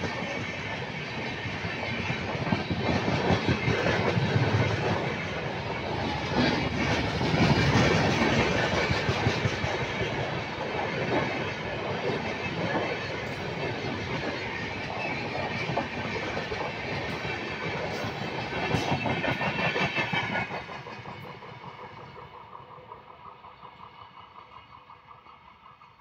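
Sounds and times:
train wheels clattering over rail joints: 0.0s - 23.9s.

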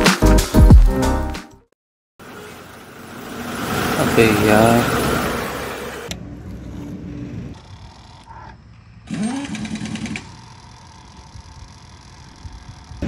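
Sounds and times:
motorcycle starter cranking: 9.1s - 13.0s.

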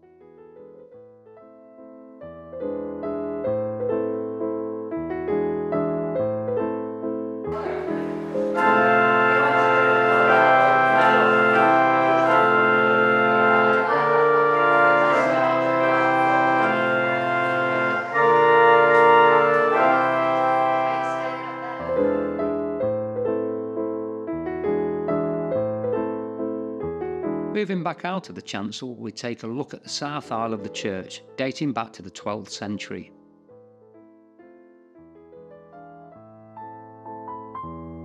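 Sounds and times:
pipe organ playing held chords: 7.6s - 23.1s.

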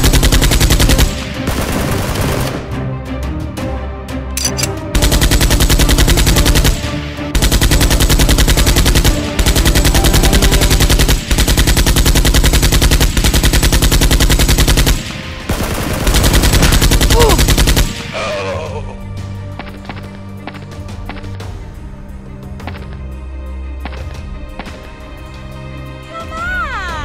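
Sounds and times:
machine-gun fire: 0.0s - 2.7s, 5.0s - 18.1s.

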